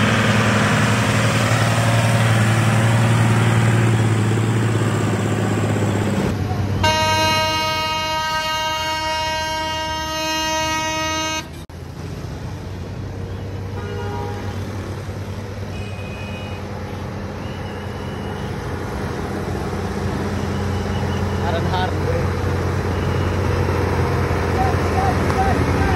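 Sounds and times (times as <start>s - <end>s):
diesel truck engine running: 0.0s - 13.8s, 16.6s - 25.9s
vehicle horn long blast: 6.8s - 11.6s, 13.8s - 14.6s.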